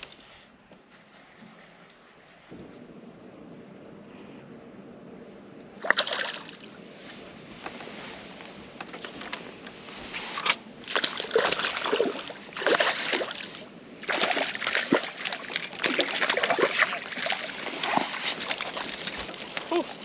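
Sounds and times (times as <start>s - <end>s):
fish splashing in water: 10.9s - 19.4s.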